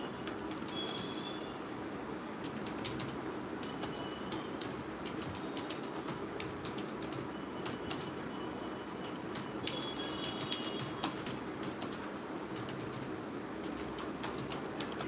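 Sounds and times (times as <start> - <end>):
steady background hum: 0.0 - 15.0.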